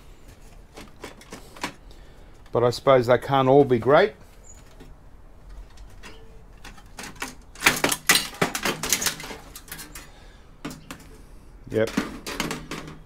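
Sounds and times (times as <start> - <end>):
computer parts clicking and clattering: 5.4 - 11.2, 11.8 - 13.0.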